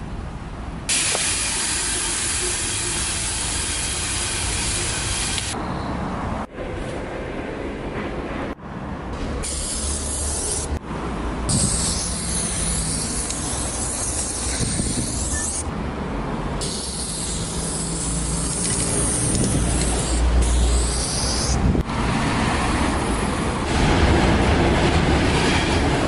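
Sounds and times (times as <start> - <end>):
spray paint can hissing: 0.9 - 5.6, 9.4 - 10.8, 11.5 - 15.7, 16.6 - 21.6.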